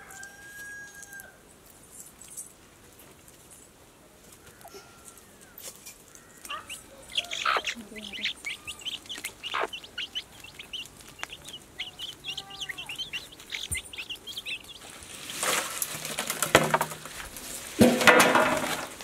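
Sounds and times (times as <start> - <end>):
hen clucking: 6.3 - 16.9
chicks peeping: 6.4 - 16.9
prawns clattering on steel plates: 15.3 - 19.0.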